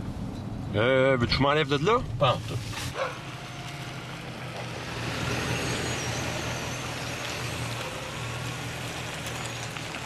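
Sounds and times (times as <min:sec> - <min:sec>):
tyre and road noise: 0:00.0 - 0:10.0
truck engine running: 0:02.9 - 0:10.0.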